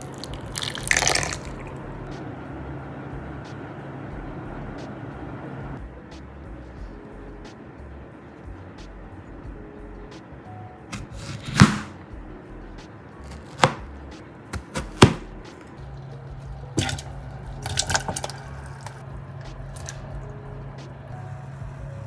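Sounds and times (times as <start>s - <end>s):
soft background music: 0.0s - 22.0s
knife cutting on cutting board: 10.9s - 11.9s, 13.2s - 13.8s.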